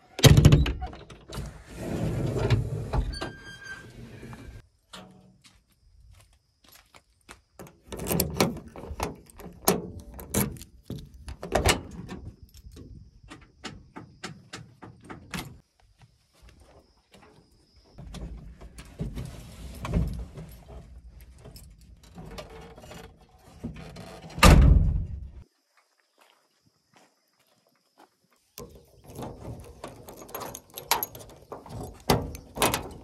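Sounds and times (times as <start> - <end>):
door latch clicks and clunks: 7.6 - 15.6, 28.6 - 33.0
knocks and scraping climbing: 7.6 - 15.6, 17.2 - 25.4, 28.6 - 33.0
heavy steel door slam: 24.4 - 25.3.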